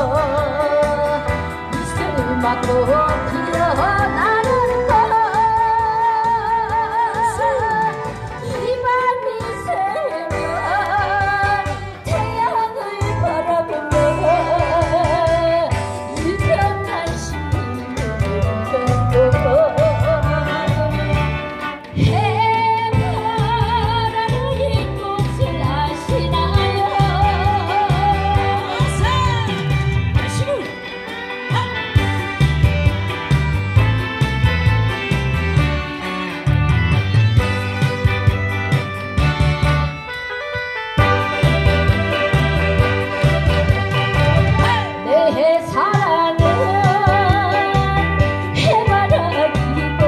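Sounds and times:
woman singing: 0:00.0 - 0:21.3, 0:22.0 - 0:32.0, 0:44.6 - 0:50.0
amplified instrumental accompaniment: 0:00.0 - 0:50.0
backing music with steady beat: 0:00.0 - 0:50.0.

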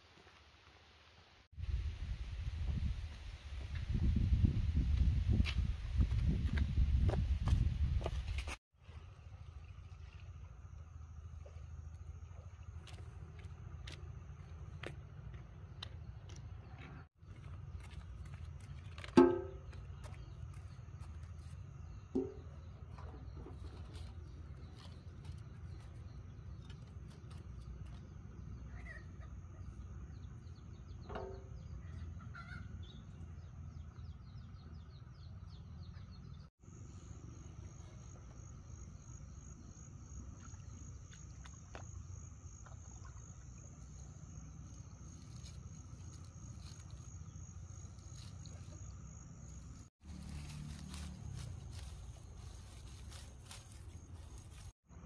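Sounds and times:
constant low rumble: 0:01.7 - 0:55.0
insect high-pitched trill: 0:36.6 - 0:54.7.

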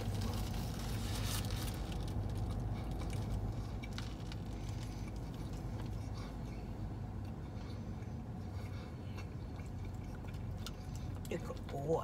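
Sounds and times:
paper wrapper crinkling: 0:00.0 - 0:04.9
low hum inside car: 0:00.0 - 0:12.0.

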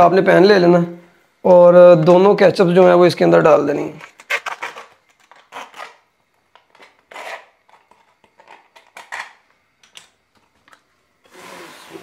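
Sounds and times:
plastic pouch crinkling: 0:03.9 - 0:09.4
knife cutting plastic: 0:04.0 - 0:09.4.

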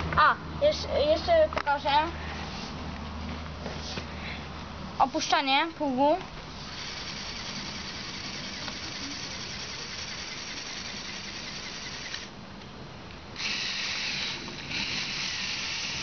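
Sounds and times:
toy truck motor whirring: 0:06.6 - 0:12.3, 0:13.4 - 0:16.0.

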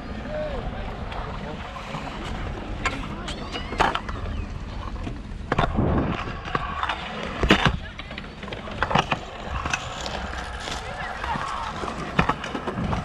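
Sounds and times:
scooter wheels rolling on concrete: 0:00.0 - 0:13.0
wind on microphone: 0:05.5 - 0:07.9.

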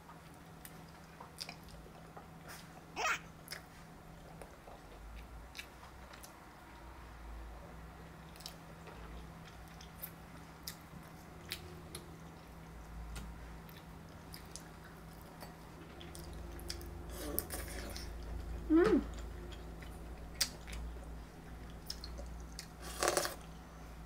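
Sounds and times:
close-up chewing: 0:00.2 - 0:02.9, 0:08.2 - 0:23.5.

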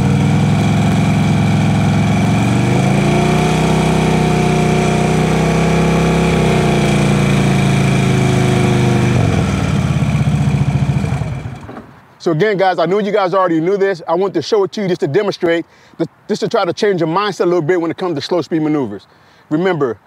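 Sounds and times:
motorcycle engine revving: 0:00.0 - 0:11.9.

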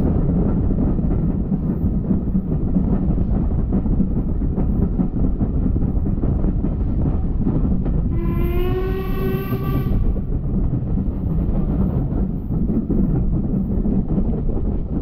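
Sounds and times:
train rumbling on rails: 0:00.0 - 0:15.0
steam whistle blast: 0:08.1 - 0:10.2.

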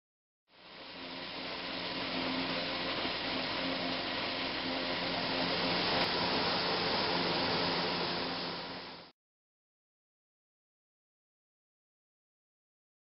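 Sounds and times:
forage harvester mechanical drone: 0:00.5 - 0:09.1.

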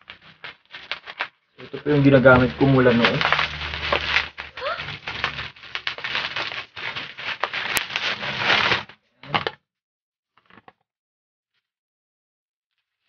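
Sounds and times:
bubble wrap crackling: 0:00.0 - 0:09.0.

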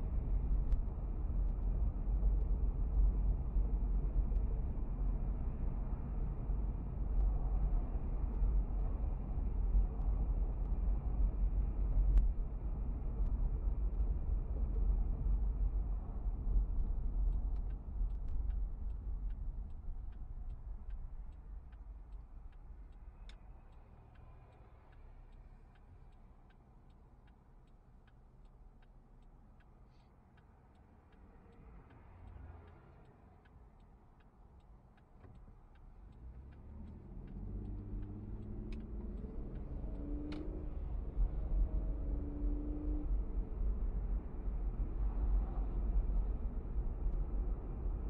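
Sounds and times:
engine and road rumble: 0:00.0 - 0:48.0
turn signal ticking: 0:13.2 - 0:48.0.

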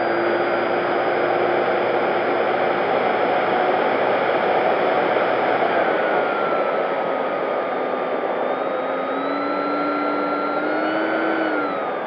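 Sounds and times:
electric motor and propeller tone: 0:00.0 - 0:12.0.

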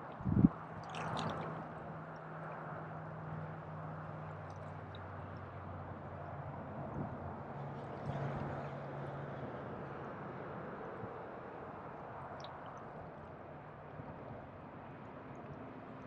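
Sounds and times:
waves lapping against rocks: 0:00.0 - 0:06.3.

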